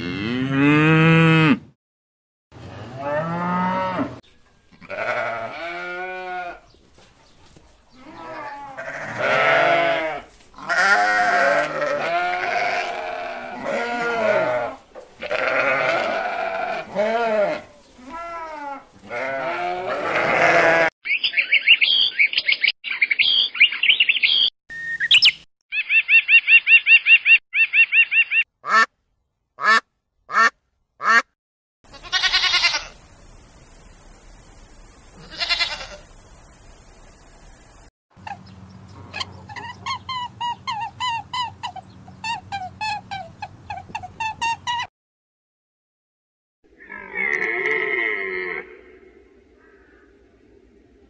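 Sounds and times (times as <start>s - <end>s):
goats bleating: 4.7s - 6.6s, 8.0s - 20.9s, 31.9s - 33.0s, 35.2s - 36.1s
sheep and lambs bleating: 4.7s - 6.7s, 7.9s - 21.0s, 31.9s - 33.0s, 35.2s - 36.1s.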